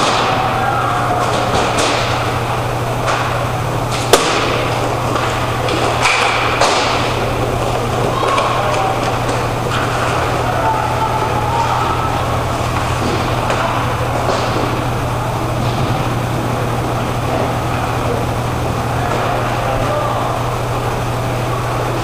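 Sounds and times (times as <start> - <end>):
sharp crack: 0.0 - 7.4
hockey sticks clacking: 0.0 - 16.0
skate wheels rolling and scraping: 0.0 - 20.3
steady low hum: 0.0 - 22.0.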